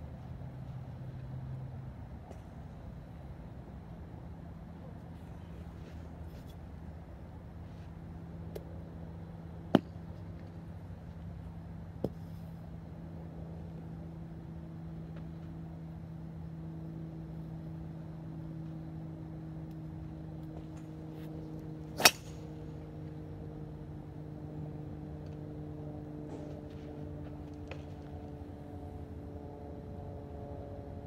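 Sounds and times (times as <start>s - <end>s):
steady low hum: 0.0s - 31.0s
golf driver striking ball: 22.0s - 22.5s.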